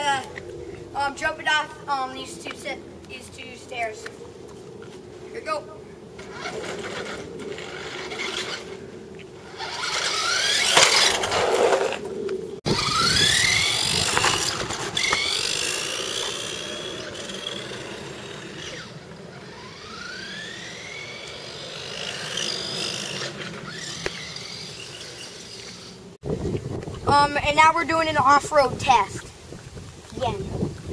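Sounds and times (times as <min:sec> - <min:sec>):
toy car electric motor whining: 0:06.2 - 0:08.8, 0:09.4 - 0:12.0, 0:12.7 - 0:26.1.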